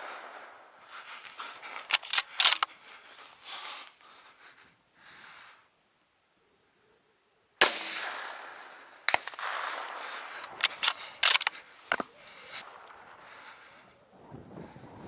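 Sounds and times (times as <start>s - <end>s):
rifle shot: 7.6s - 11.6s
sharp clicks and knocks: 9.1s - 12.1s.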